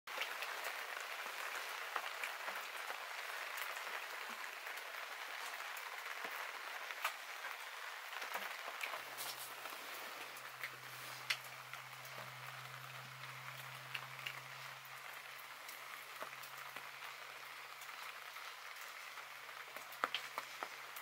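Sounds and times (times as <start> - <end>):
light rain pattering: 0.1 - 21.0
sharp drips: 5.0 - 21.0.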